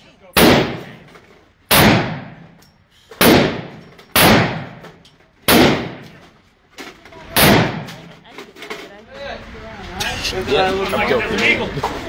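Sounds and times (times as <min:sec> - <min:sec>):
handgun shots echoing: 0:00.4 - 0:01.1, 0:01.7 - 0:02.6, 0:03.2 - 0:06.2, 0:07.4 - 0:08.1.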